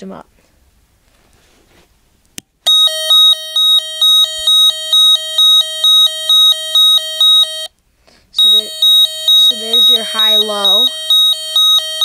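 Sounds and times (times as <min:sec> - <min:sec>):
electronic siren hi-lo tone: 0:02.7 - 0:07.7, 0:08.4 - 0:12.0.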